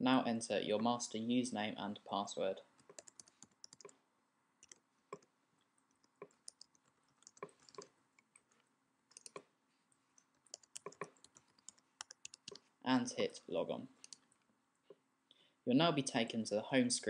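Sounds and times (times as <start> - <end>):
computer keyboard typing: 2.8 - 4.0, 4.6 - 5.3, 5.9 - 9.5, 10.2 - 12.7, 14.0 - 14.3.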